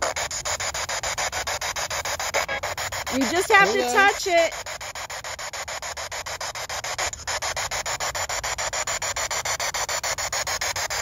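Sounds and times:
radio static chopped into bursts: 0:00.0 - 0:11.0.

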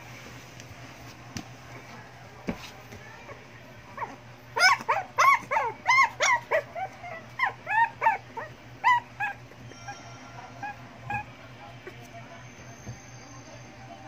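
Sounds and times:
dog whining and yelping: 0:04.0 - 0:09.9, 0:10.6 - 0:11.3.

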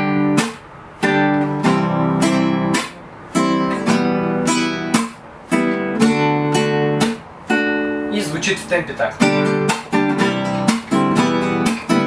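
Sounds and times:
acoustic guitar strumming: 0:00.0 - 0:12.0
fingernail slapping strings: 0:04.9 - 0:05.8, 0:09.6 - 0:12.0.

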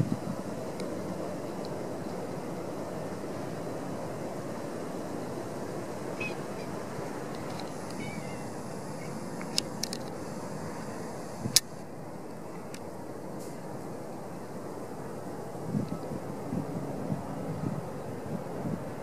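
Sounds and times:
low rushing background noise: 0:00.0 - 0:19.0.

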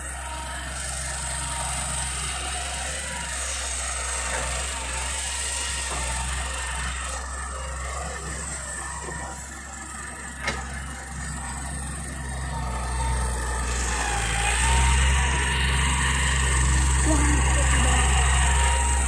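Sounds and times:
excavator diesel engine: 0:00.0 - 0:19.0
tractor idling: 0:00.0 - 0:19.0.

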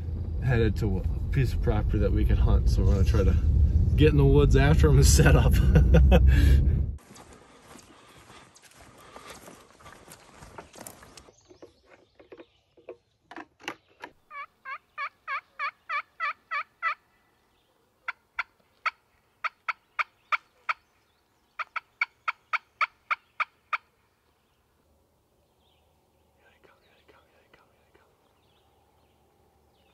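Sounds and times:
footsteps rustling dry leaves: 0:07.0 - 0:11.3
turkey yelps: 0:14.3 - 0:17.0.

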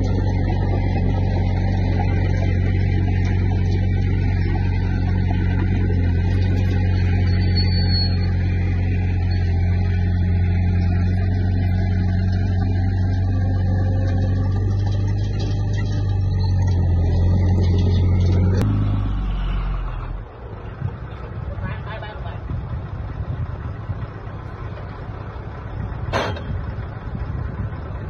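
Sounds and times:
bulldozer diesel engine running: 0:00.0 - 0:28.0.

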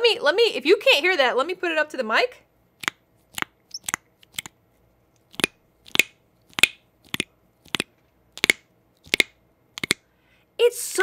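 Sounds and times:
suction cups popping: 0:02.8 - 0:04.6, 0:05.2 - 0:10.1.

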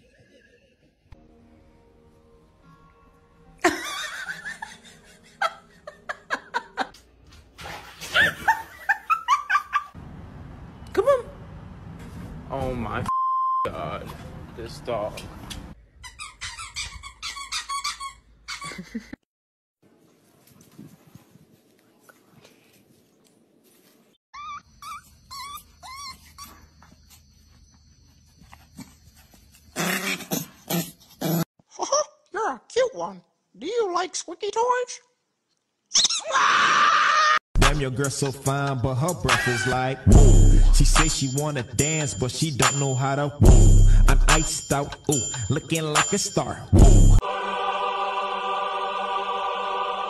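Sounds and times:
person laughing: 0:03.6 - 0:07.0, 0:18.6 - 0:19.2
puppy squealing: 0:16.0 - 0:18.8, 0:24.4 - 0:26.7.

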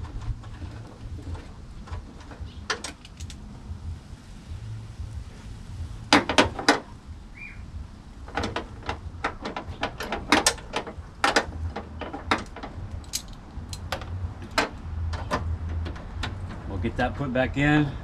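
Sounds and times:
socket ratchet clicking: 0:02.8 - 0:03.4, 0:08.4 - 0:16.4.

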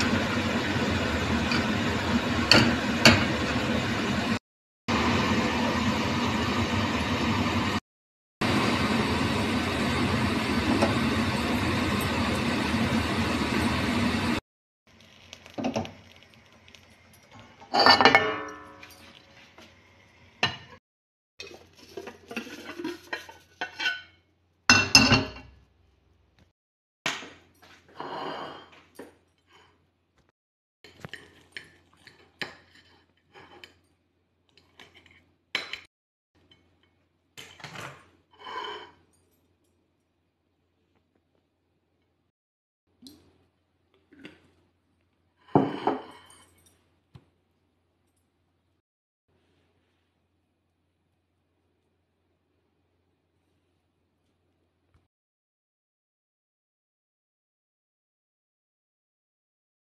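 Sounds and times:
kitchen utensils clinking on dishes: 0:17.1 - 0:19.4, 0:45.5 - 0:46.9.

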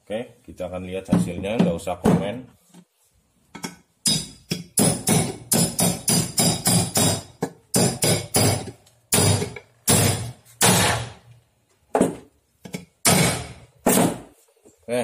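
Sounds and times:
hammer striking steel: 0:04.0 - 0:11.2, 0:13.0 - 0:13.6.

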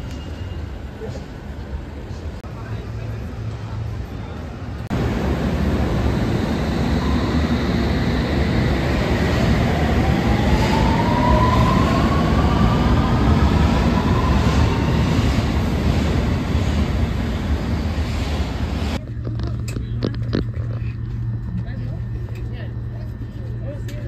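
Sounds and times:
rising train whine: 0:00.0 - 0:19.0
train rumbling: 0:00.0 - 0:24.0.

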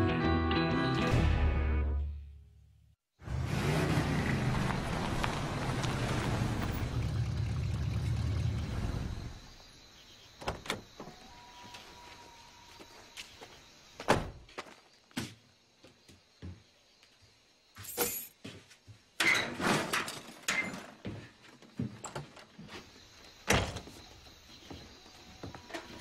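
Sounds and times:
handling and clattering: 0:19.2 - 0:22.7.

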